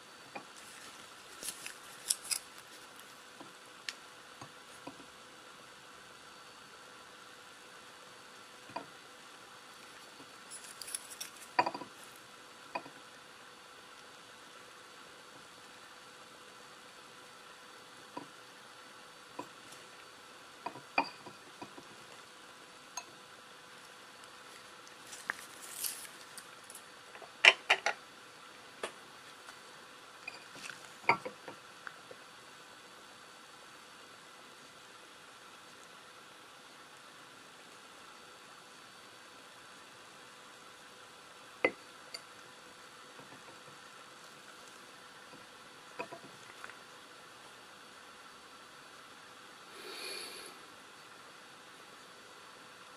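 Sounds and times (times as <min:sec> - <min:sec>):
faint steady hiss: 0:00.0 - 0:52.9
ceramic plate clicks and knocks: 0:27.4 - 0:28.0.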